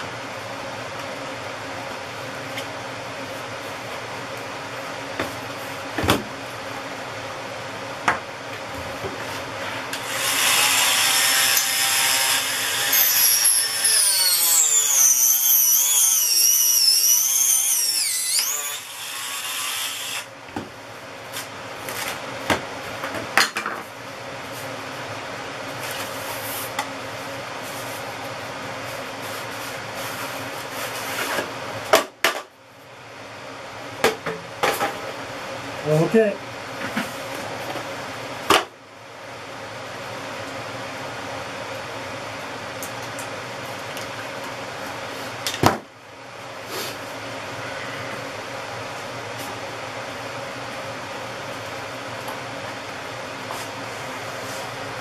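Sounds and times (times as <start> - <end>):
steady background hum: 0.0 - 55.0
rotary tool grinding: 10.0 - 20.3.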